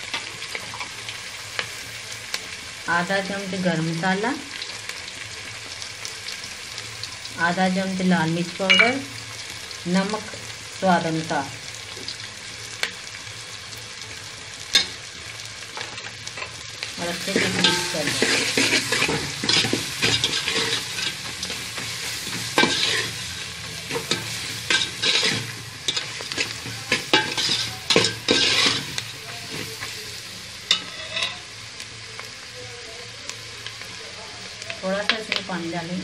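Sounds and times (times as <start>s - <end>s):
onions sizzling in hot oil: 0.0s - 36.0s
ladle scraping a pot: 17.3s - 23.2s, 23.9s - 29.0s.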